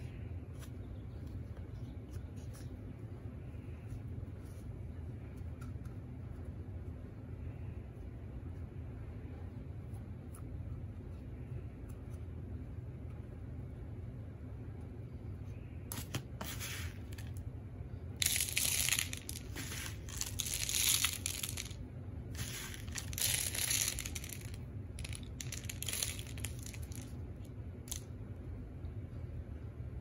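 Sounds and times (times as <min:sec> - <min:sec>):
dry birdseed rustling: 0:18.2 - 0:27.1.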